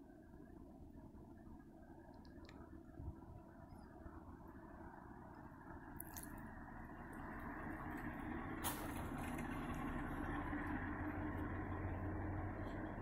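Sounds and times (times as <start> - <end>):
distant diesel locomotives rumbling: 0.0 - 13.0.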